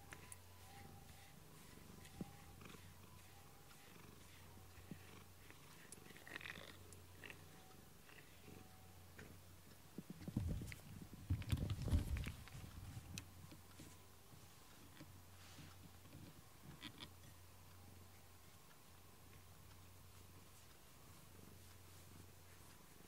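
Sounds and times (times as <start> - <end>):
brush ticks: 0.0 - 8.8
cat purring: 0.2 - 9.4.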